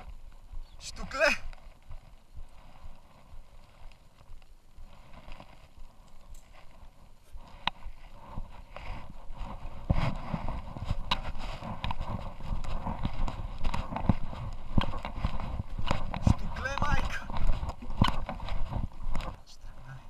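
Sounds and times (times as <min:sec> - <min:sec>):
footsteps on dry mud: 0:00.0 - 0:20.0.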